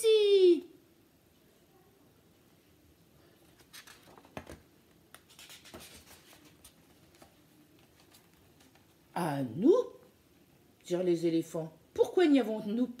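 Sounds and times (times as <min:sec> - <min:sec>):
book pages rustling: 0:03.4 - 0:09.0.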